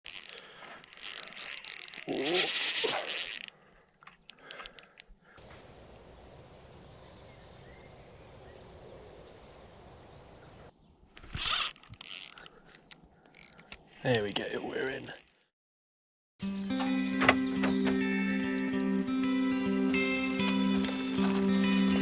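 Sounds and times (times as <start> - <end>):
fishing reel ratchet clicking: 0.0 - 3.6, 11.4 - 12.5, 13.3 - 13.7, 14.3 - 15.4.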